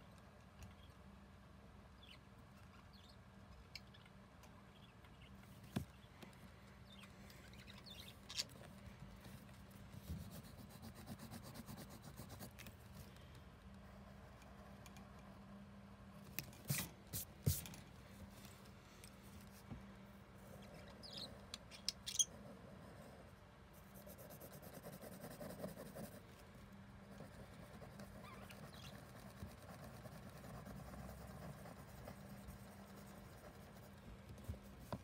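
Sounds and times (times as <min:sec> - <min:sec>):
pen scratching on paper: 0:27.2 - 0:35.0.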